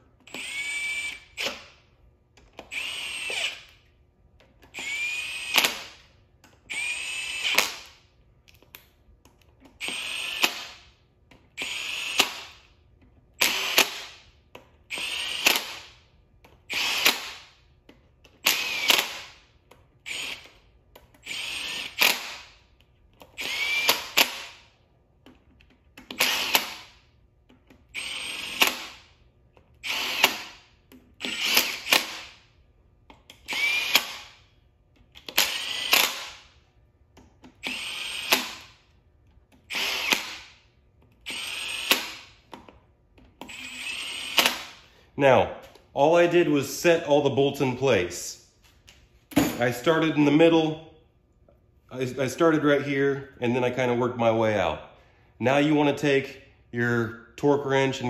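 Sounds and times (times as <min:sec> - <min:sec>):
cordless drill whining: 0:00.2 - 0:01.8, 0:02.4 - 0:03.8, 0:04.7 - 0:06.0, 0:06.7 - 0:08.0, 0:09.8 - 0:10.8, 0:11.6 - 0:12.7, 0:13.4 - 0:14.2, 0:14.9 - 0:15.9, 0:16.7 - 0:17.5, 0:18.4 - 0:19.4, 0:20.0 - 0:20.6, 0:21.2 - 0:22.5, 0:23.3 - 0:24.6, 0:26.1 - 0:26.9, 0:27.9 - 0:29.0, 0:29.8 - 0:30.6, 0:31.2 - 0:32.4, 0:33.4 - 0:34.4, 0:35.2 - 0:36.5, 0:37.5 - 0:38.8, 0:39.7 - 0:40.6, 0:41.2 - 0:42.4, 0:43.4 - 0:44.9.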